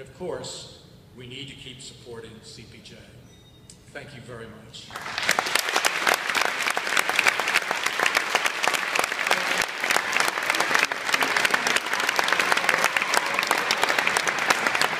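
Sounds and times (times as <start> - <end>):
audience applauding: 4.9 - 14.9.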